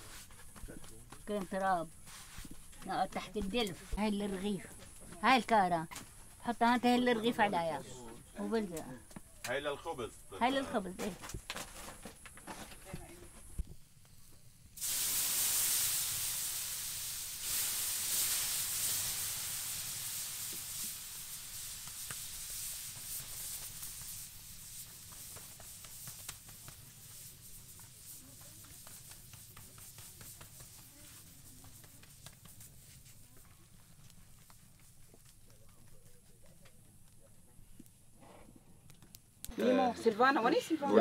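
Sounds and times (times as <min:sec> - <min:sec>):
dough sizzling on hot metal: 0:00.0 - 0:08.7, 0:09.5 - 0:38.0
small crackles: 0:10.7 - 0:39.6.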